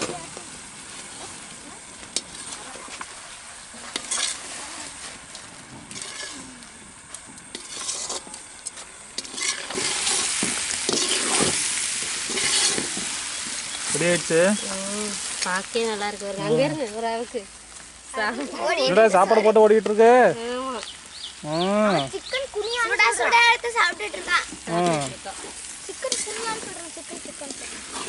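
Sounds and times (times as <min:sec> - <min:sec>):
food sizzling: 0:00.0 - 0:28.0
metal ladle scraping a pot: 0:03.8 - 0:05.2, 0:05.9 - 0:06.5, 0:07.5 - 0:08.4, 0:09.2 - 0:13.5, 0:27.5 - 0:28.0.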